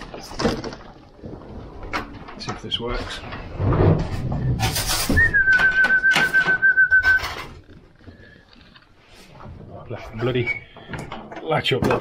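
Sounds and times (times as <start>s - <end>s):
rattling and knocks: 0.0s - 8.3s, 9.4s - 12.0s
trilling whistle: 5.1s - 7.4s.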